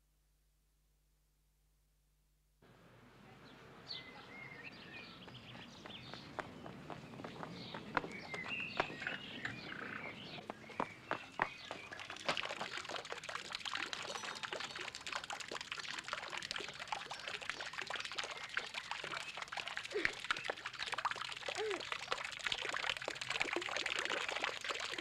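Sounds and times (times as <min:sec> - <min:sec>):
fountain splashing into basin: 0:08.0 - 0:25.0.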